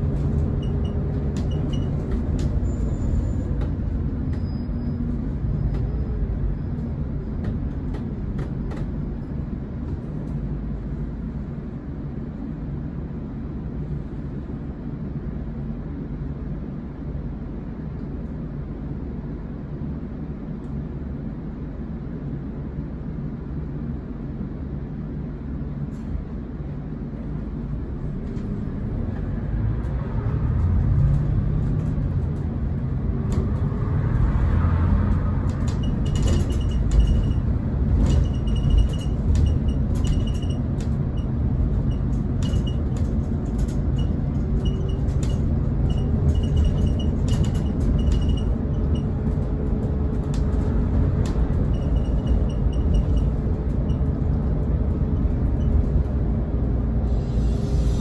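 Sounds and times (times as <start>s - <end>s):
interior rattles and knocks: 0.0s - 11.0s, 27.1s - 57.0s
diesel coach engine: 0.0s - 58.0s
low road rumble: 0.0s - 58.0s.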